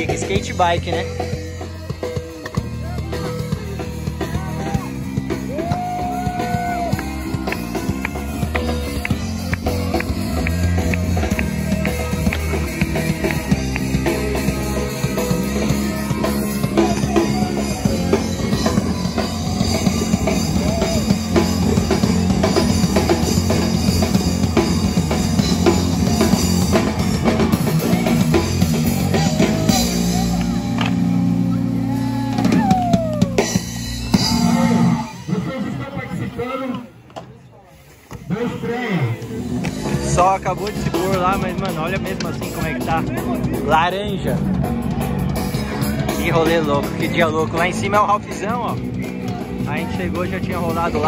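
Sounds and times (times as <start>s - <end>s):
drum kit steady beat: 0.0s - 35.2s, 39.2s - 51.0s
live rock band playing: 0.0s - 36.6s, 38.6s - 51.0s.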